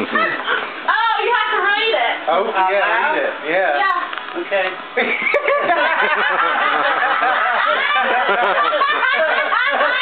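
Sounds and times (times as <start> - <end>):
people laughing: 0.0 - 0.7, 5.0 - 10.0.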